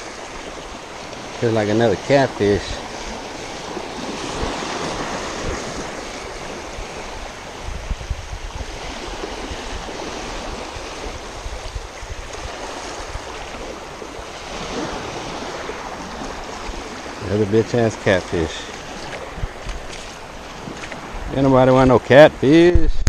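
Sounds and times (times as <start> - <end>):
small waves washing: 0.0 - 22.7
wind rumble on microphone: 2.4 - 17.4, 18.6 - 23.0.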